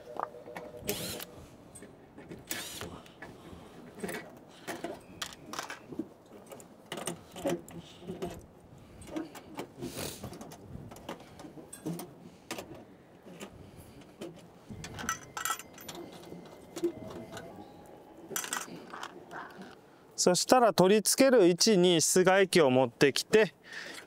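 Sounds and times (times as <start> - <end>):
tools clicking and rattling: 0.9 - 8.4, 9.0 - 17.6, 18.3 - 19.8.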